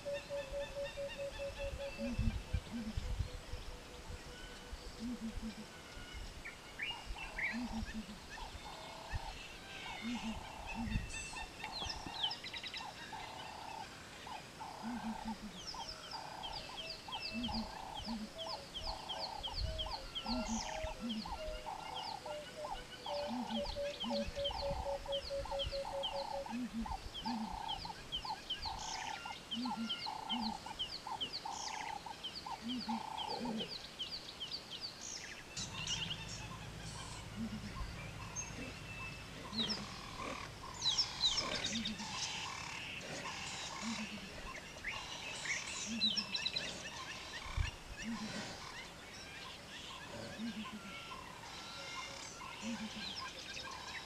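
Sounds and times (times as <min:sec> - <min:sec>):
bird call repeated steadily: 0:00.0 - 0:06.2, 0:06.9 - 0:13.4, 0:14.3 - 0:33.8, 0:35.5 - 0:54.0
low paired bird calls: 0:00.0 - 0:54.0.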